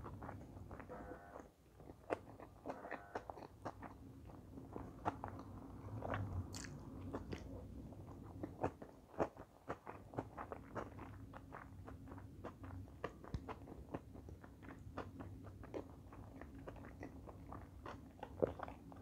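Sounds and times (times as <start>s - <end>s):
chewing with wet mouth sounds: 0.0s - 19.0s.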